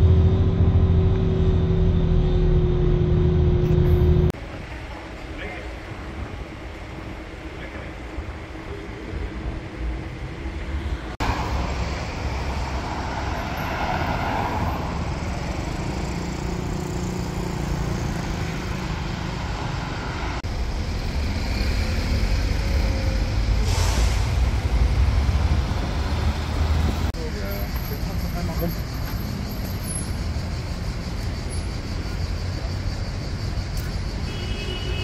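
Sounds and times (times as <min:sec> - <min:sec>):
cars and buses passing: 0:00.0 - 0:35.0
brief hiss: 0:23.6 - 0:24.4.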